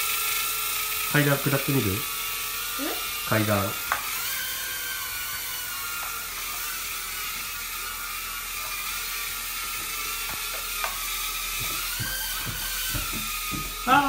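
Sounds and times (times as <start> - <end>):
drone propellers whining: 4.0 - 14.0.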